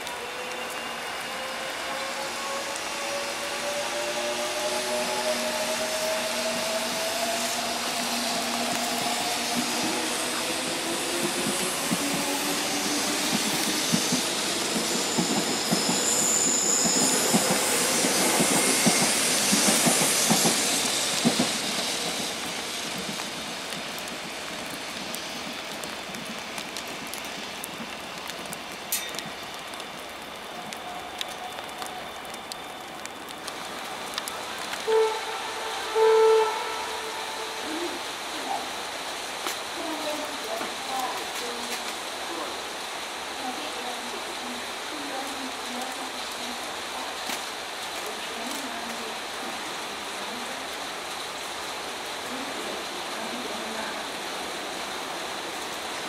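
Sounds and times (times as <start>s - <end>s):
train wheels clattering on rails: 4.2s - 29.5s
train horn blasts: 34.8s - 38.0s.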